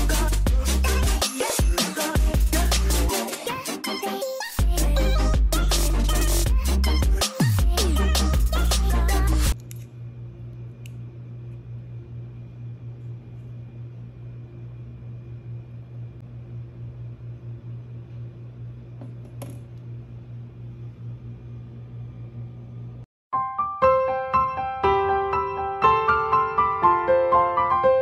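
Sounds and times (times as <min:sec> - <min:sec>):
low mechanical hum: 0:08.6 - 0:23.1.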